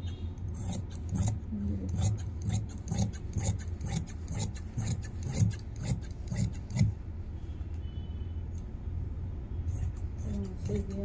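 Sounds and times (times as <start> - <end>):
scissors snipping fabric: 0.0 - 7.0, 9.8 - 11.0.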